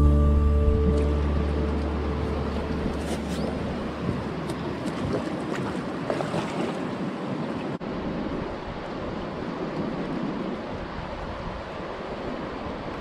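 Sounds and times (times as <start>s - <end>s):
wind on microphone: 0.0s - 7.2s
river water over stones: 0.0s - 13.0s.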